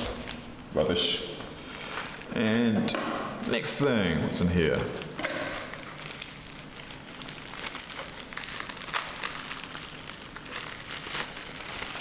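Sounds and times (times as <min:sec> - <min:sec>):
packet crinkling and tearing: 0:05.0 - 0:12.0.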